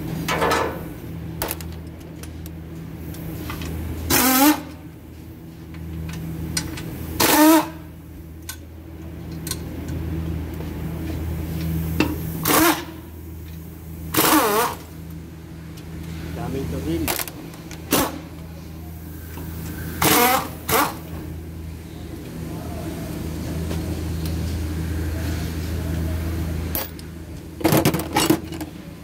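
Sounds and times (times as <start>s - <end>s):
steady low hum: 0.0s - 29.0s
pneumatic impact wrench bursts: 4.1s - 4.8s, 7.2s - 7.9s, 12.4s - 13.1s, 14.1s - 14.9s, 20.0s - 21.1s.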